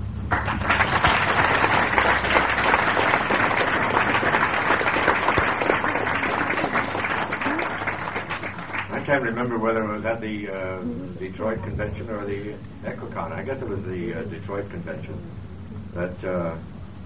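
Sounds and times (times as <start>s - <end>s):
audience applauding: 0.3s - 9.8s.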